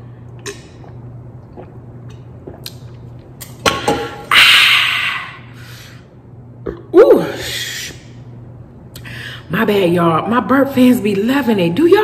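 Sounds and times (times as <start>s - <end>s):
person drinking from tumbler: 0.3s - 3.2s.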